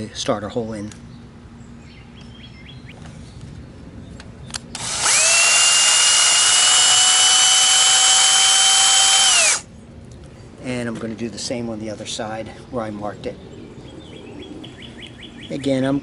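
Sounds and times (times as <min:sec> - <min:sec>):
power drill whining: 0:04.7 - 0:09.6.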